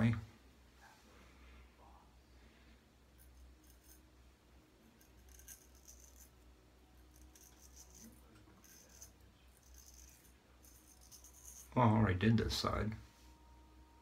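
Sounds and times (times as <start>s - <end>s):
low steady hum: 0.0s - 14.0s
straight razor scraping whiskers: 7.1s - 11.8s.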